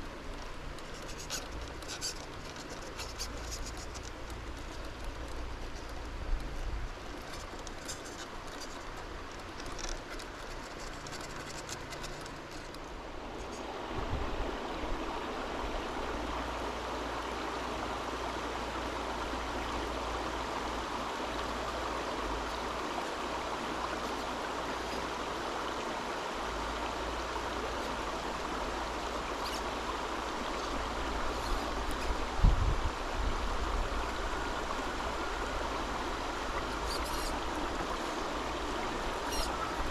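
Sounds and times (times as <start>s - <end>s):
light ticks and crackles: 0.0s - 13.7s
river water rushing: 0.0s - 39.9s.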